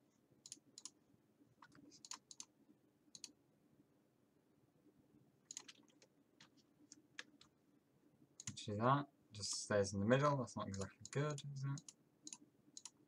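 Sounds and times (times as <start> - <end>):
faint computer mouse clicks: 3.1 - 3.4, 10.7 - 13.0.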